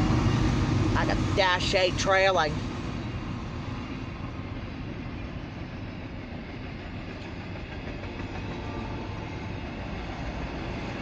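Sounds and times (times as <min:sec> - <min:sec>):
freight train cars rolling past: 0:00.0 - 0:11.0.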